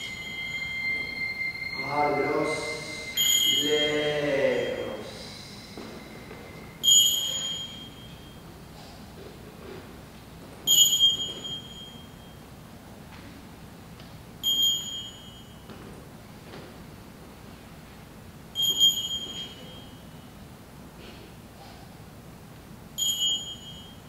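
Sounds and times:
low wavering pitched tone: 0:00.0 - 0:08.4
high metallic chime: 0:00.0 - 0:08.5, 0:10.7 - 0:12.4, 0:14.4 - 0:15.7, 0:18.6 - 0:20.2, 0:23.0 - 0:24.0.

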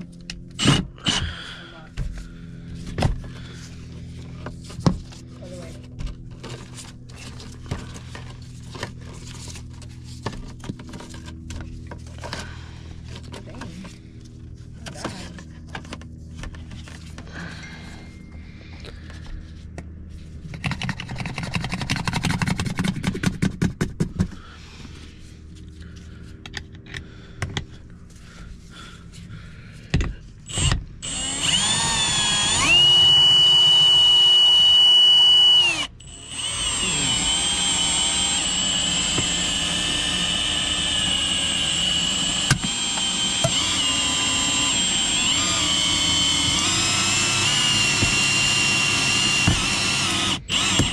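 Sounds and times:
power tool motor whine: 0:00.0 - 0:01.6, 0:30.5 - 0:50.9.

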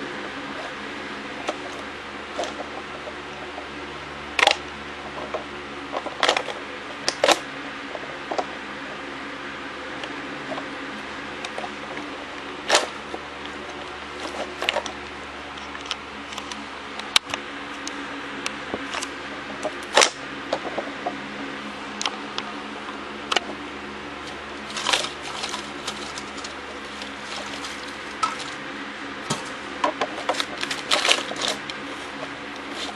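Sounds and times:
background hum and hiss: 0:00.0 - 0:32.9
crumpled foil crinkling: 0:24.6 - 0:28.6, 0:30.3 - 0:32.9.

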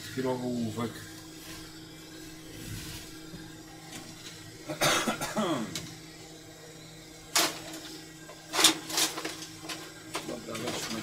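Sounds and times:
electrical hum: 0:00.0 - 0:11.0
objects clattering: 0:08.5 - 0:11.0.

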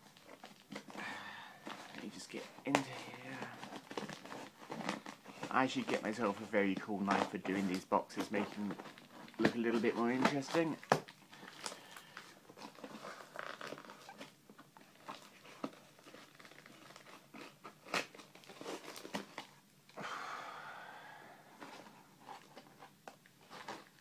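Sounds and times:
cardboard and tape crinkling: 0:00.0 - 0:19.7, 0:21.6 - 0:24.0
packing tape ripping: 0:07.0 - 0:19.6.

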